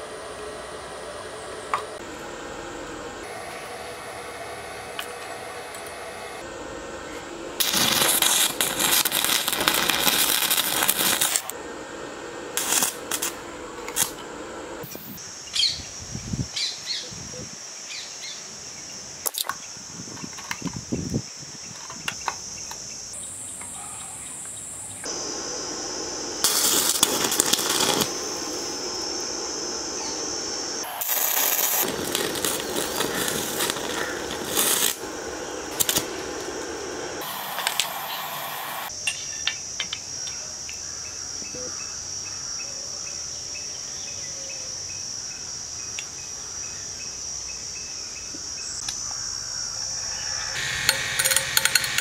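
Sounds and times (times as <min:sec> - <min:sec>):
arc welding crackle: 0:07.6 - 0:11.6, 0:12.5 - 0:15.2, 0:25.0 - 0:38.9, 0:50.6 - 0:52.0.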